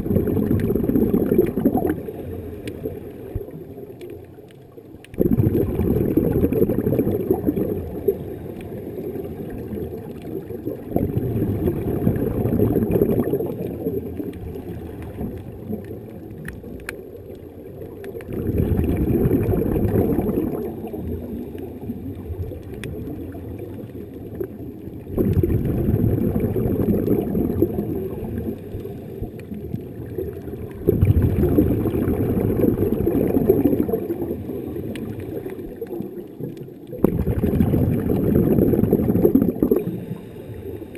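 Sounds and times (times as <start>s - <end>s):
air bubbles gurgling: 0.0s - 40.9s
underwater regulator breathing: 39.6s - 40.9s.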